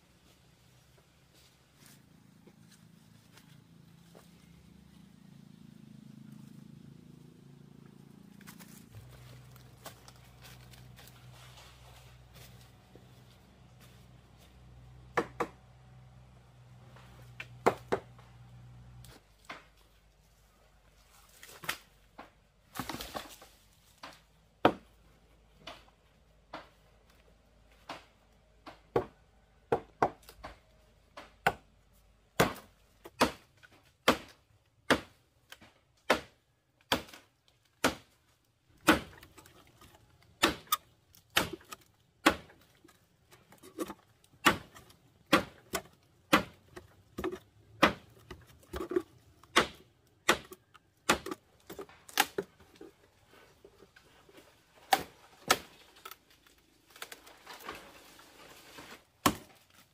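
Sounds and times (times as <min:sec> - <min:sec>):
blade chopping into wood: 0:32.4 - 0:38.1, 0:38.8 - 0:42.7, 0:43.7 - 0:52.6, 0:59.2 - 0:59.6.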